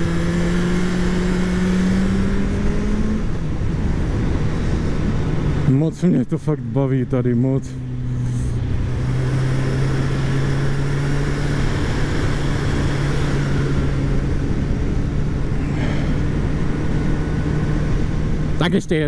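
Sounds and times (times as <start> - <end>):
heavy wind: 0.0 - 19.0
road rush: 0.0 - 19.0.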